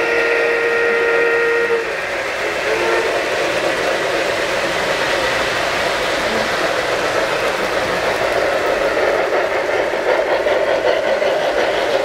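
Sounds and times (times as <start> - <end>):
model train whistle: 0.0 - 3.4
model train wheels rumbling: 0.0 - 12.0.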